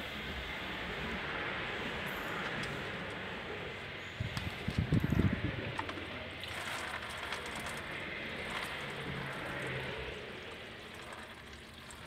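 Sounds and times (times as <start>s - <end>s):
coolant splashing into bucket: 4.8s - 12.0s.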